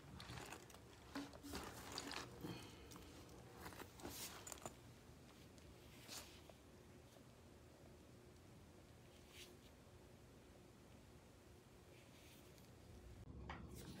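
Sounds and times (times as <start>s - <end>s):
handbag rustling and crinkling: 0.0s - 6.4s.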